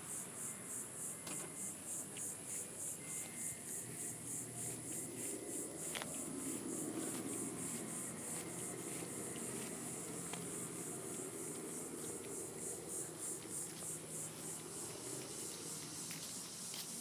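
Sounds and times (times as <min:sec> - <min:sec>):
high-pitched insect chorus pulsing: 0:00.0 - 0:17.0.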